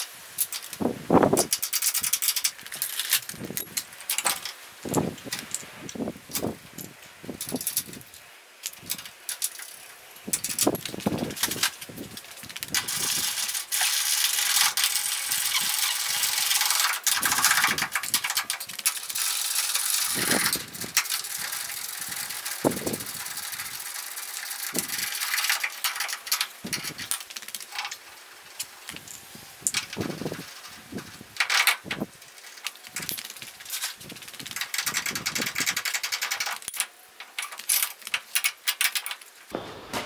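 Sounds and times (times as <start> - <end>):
ratchet clicking: 12.8 - 27.1.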